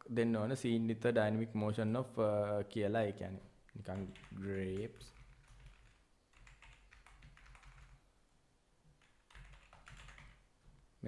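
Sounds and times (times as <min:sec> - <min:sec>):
faint keyboard typing: 0:03.6 - 0:08.1, 0:08.9 - 0:10.9.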